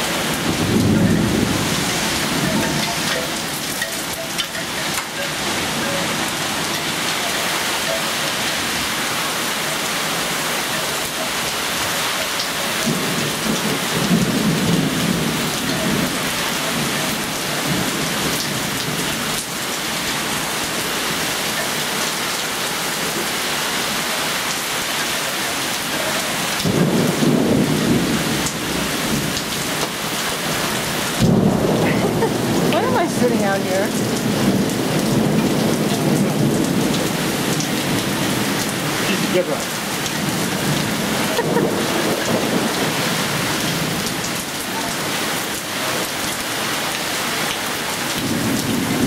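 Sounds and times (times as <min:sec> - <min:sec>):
thunder rumbling: 0:00.0 - 0:07.4, 0:12.8 - 0:19.3, 0:26.6 - 0:44.8
heavy rain hissing: 0:00.0 - 0:49.0.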